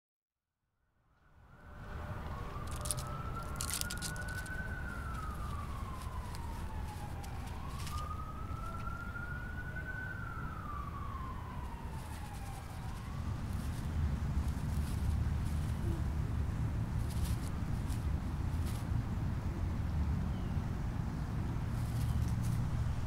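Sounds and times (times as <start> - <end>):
emergency siren wailing: 1.4 - 18.8.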